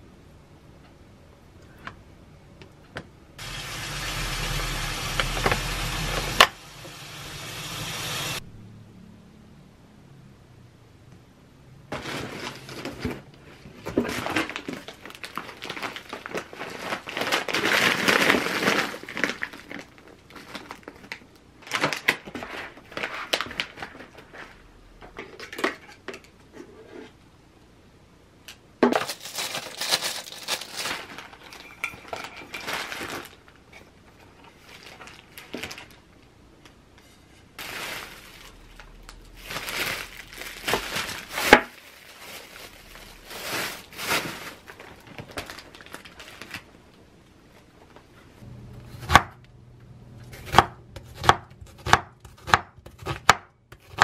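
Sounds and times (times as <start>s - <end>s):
plastic bags rustling: 3.4s - 8.4s, 11.9s - 26.3s, 28.9s - 36.3s, 37.4s - 48.1s
cardboard and plastic rustling: 11.9s - 27.2s, 28.8s - 48.4s.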